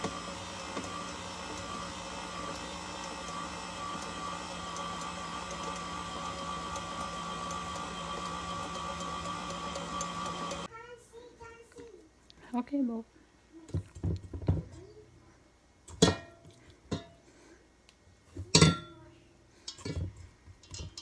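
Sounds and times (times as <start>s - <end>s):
stand mixer motor humming: 0.0s - 10.7s.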